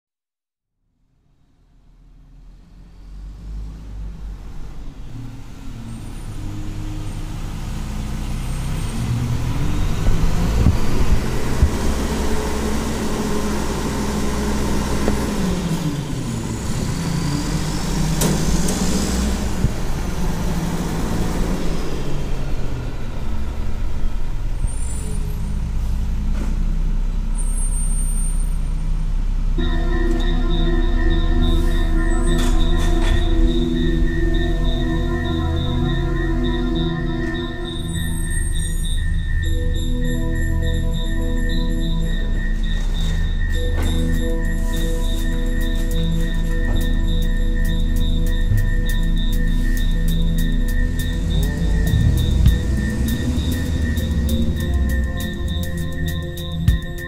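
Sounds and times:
rumbling ambient noise drone: 28.4s - 57.0s.

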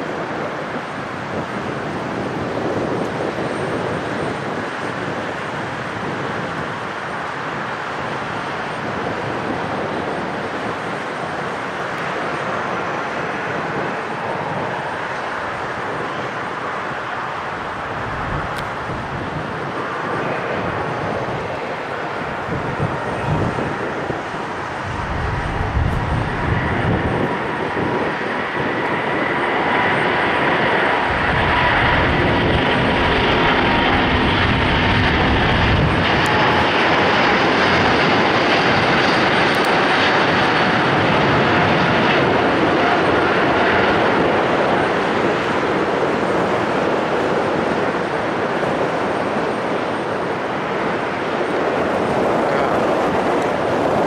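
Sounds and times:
faint jet whine: 0.0s - 54.0s
jet engine roar: 0.0s - 54.0s.

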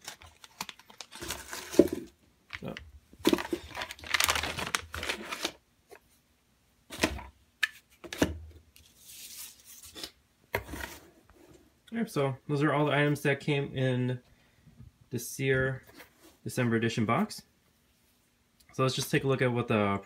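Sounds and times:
plastic packaging crinkling: 0.0s - 5.6s.

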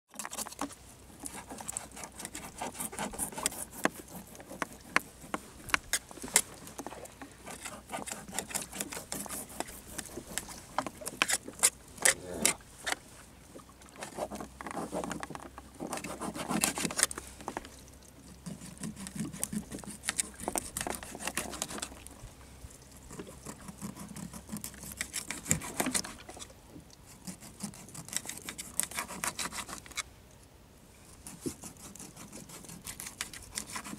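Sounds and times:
knife scraping fish scales: 0.1s - 13.0s, 15.8s - 17.5s, 18.4s - 22.1s, 23.0s - 26.5s, 27.1s - 30.1s, 31.1s - 33.9s
knife cutting fish: 0.2s - 6.4s, 7.5s - 12.6s, 27.2s - 30.0s, 31.4s - 33.9s.

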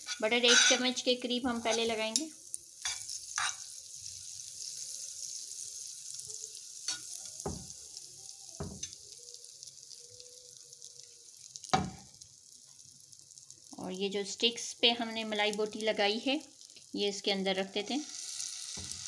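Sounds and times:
butter sizzling in a frying pan: 0.0s - 19.0s.

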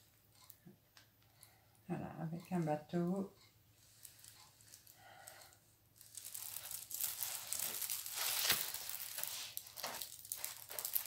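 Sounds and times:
plastic film crinkling: 3.8s - 11.0s.

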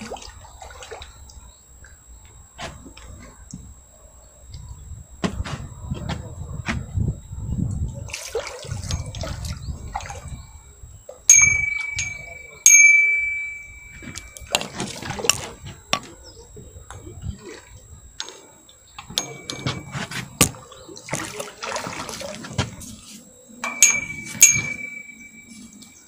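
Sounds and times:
fish splashing in water: 0.0s - 1.3s, 8.1s - 10.6s, 14.0s - 15.6s, 19.0s - 22.9s
bright bell-like dings: 11.3s - 14.6s, 19.0s - 20.0s, 23.6s - 26.0s.

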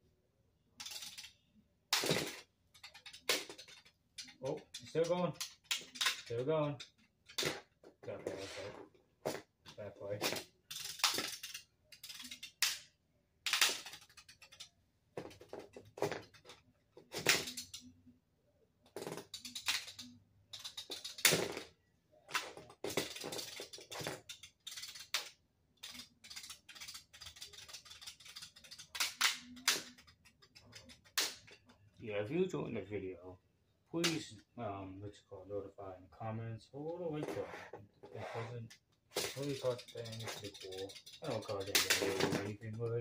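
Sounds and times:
plastic spinning tops clacking: 0.8s - 8.4s, 9.3s - 17.9s, 18.9s - 21.7s, 22.3s - 31.9s, 38.7s - 43.0s.

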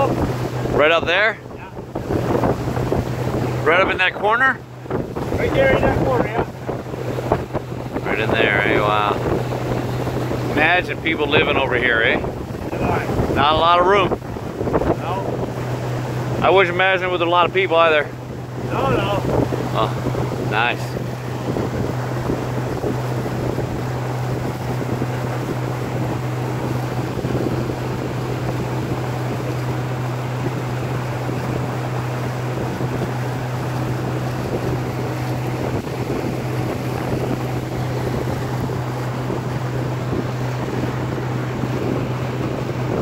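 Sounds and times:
boat engine droning: 0.0s - 43.0s
water rushing past hull: 0.0s - 43.0s
wind on microphone: 0.0s - 43.0s.

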